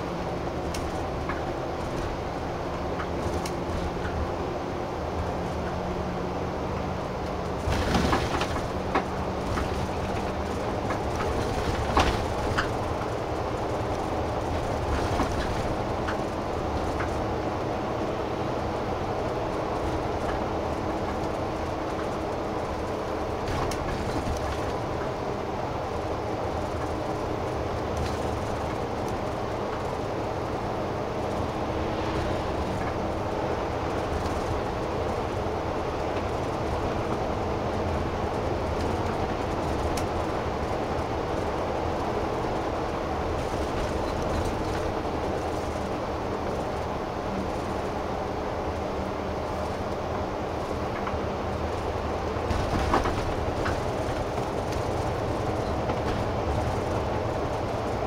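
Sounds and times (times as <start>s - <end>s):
bus engine hum: 0.0s - 58.0s.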